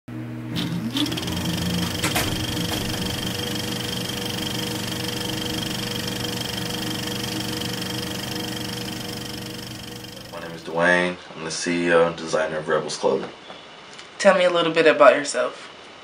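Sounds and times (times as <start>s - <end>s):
film projector whirring and rattling: 0.5s - 10.7s
rising whine: 0.5s - 10.8s
projector clicks: 0.6s - 10.6s.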